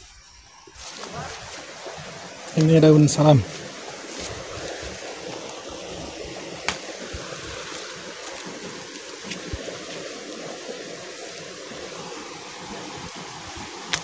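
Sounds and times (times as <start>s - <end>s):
leaves and twigs clicking: 0.0s - 2.8s, 6.4s - 14.0s
small stream running: 0.0s - 14.0s.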